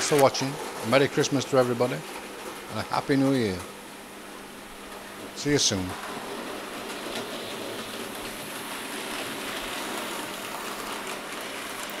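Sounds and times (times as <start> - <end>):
model train whirring on track: 5.7 - 12.0.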